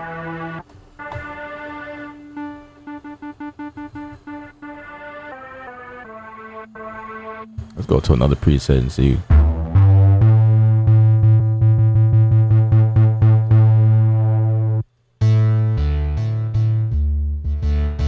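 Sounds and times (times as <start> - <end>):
pulsing bass synthesizer: 9.2 - 18.0.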